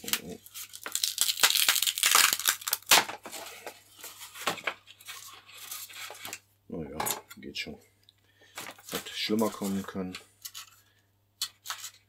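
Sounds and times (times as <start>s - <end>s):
wing crackling and tearing from tape: 0.0s - 3.0s.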